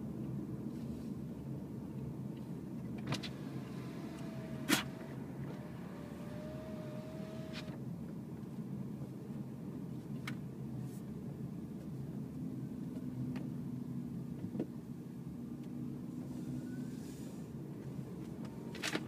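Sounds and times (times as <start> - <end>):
tyres rumbling on road: 2.8 - 7.9.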